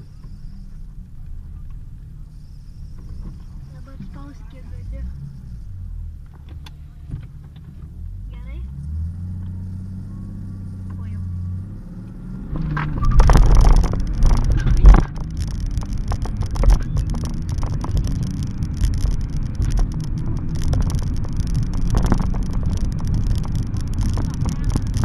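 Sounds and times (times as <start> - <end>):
diesel car accelerating hard: 0.0 - 25.0
wind and road noise: 0.0 - 25.0.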